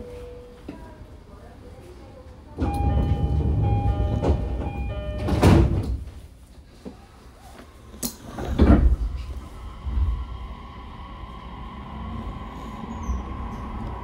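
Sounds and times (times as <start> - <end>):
train door-closing chime: 2.6 - 6.0
sliding doors shutting with thump: 2.7 - 6.0, 8.3 - 9.3.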